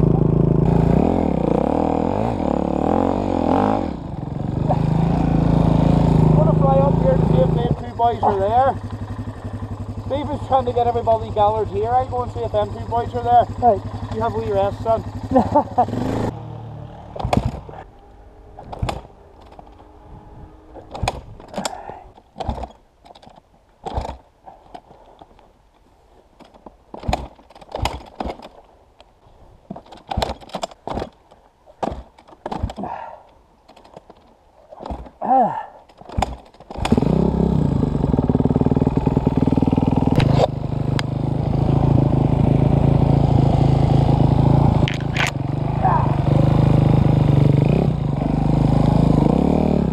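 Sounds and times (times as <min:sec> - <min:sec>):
dirt bike engine running: 0:00.0 - 0:22.0, 0:36.2 - 0:49.9
irregular knocks and clatter: 0:26.3 - 0:28.7, 0:29.6 - 0:32.9.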